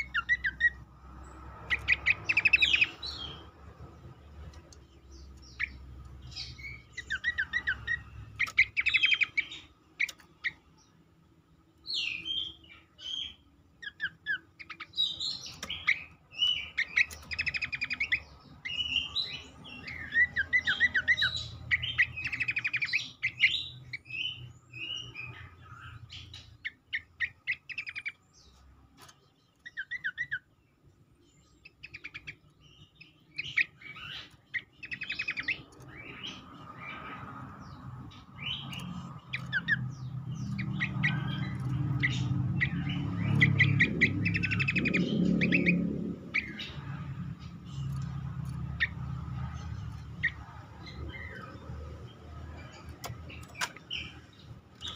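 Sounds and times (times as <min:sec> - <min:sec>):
bird chirping and whistling: 0:00.0 - 0:00.8, 0:01.7 - 0:03.4, 0:05.4 - 0:10.6, 0:11.9 - 0:28.2, 0:29.7 - 0:30.5, 0:31.6 - 0:37.1, 0:38.1 - 0:46.9.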